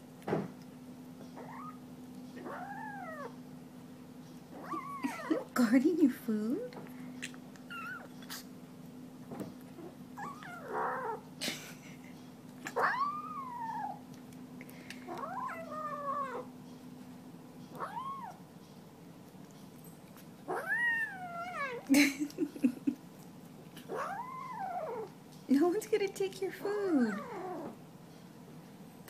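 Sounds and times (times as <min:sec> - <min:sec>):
kitten whining meows: 0:01.4 - 0:01.8, 0:02.4 - 0:03.4, 0:04.5 - 0:05.5, 0:07.7 - 0:08.5, 0:09.8 - 0:11.3, 0:12.7 - 0:14.1, 0:15.1 - 0:16.5, 0:17.7 - 0:18.4, 0:20.5 - 0:21.9, 0:23.8 - 0:25.2, 0:27.1 - 0:27.8.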